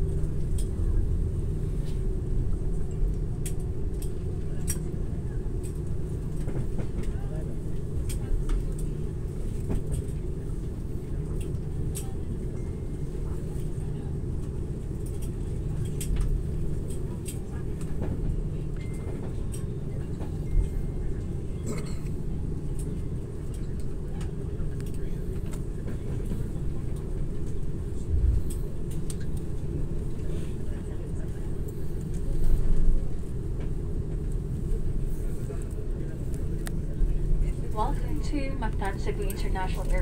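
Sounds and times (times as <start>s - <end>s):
aircraft cabin rumble: 0.0s - 40.0s.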